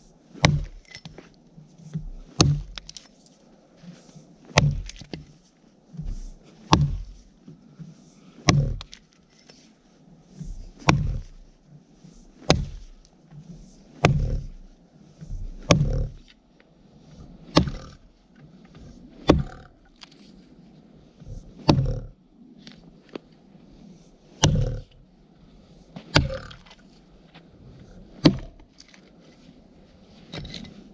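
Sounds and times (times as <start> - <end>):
axe chopping into log: 0.4 - 0.9, 2.0 - 2.9, 4.5 - 5.3, 6.0 - 7.2, 8.4 - 9.0, 10.8 - 11.4, 12.4 - 12.9, 14.0 - 14.6, 15.2 - 16.3, 17.5 - 18.0, 19.2 - 19.7, 21.6 - 22.1, 24.4 - 24.9, 26.1 - 26.6, 28.2 - 28.6.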